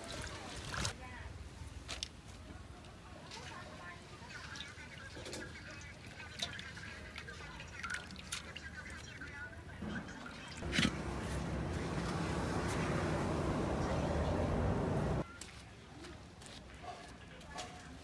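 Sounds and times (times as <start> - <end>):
liquid pouring: 4.2 - 11.4
liquid dripping: 4.2 - 12.8.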